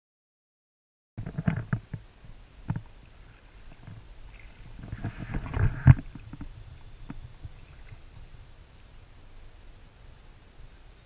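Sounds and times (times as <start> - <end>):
footsteps wading through water: 2.3 - 8.6.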